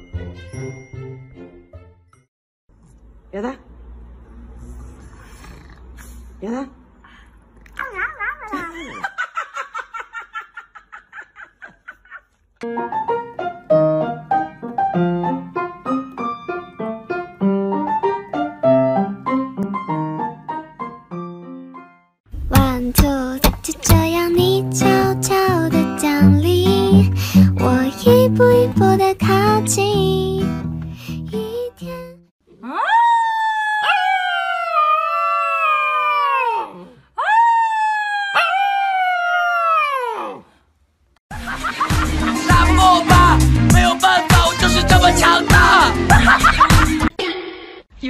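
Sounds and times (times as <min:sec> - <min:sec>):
piano music: 0:12.6 - 0:32.2
puppy howling: 0:32.6 - 0:40.5.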